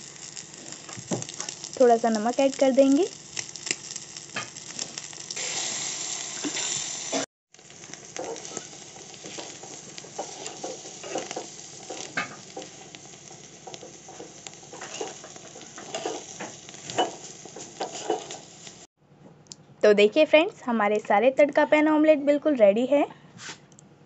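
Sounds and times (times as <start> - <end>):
omelette sizzling in hot oil: 0.0 - 18.9
steel spoon scraping a pan: 8.2 - 12.9, 13.6 - 18.6.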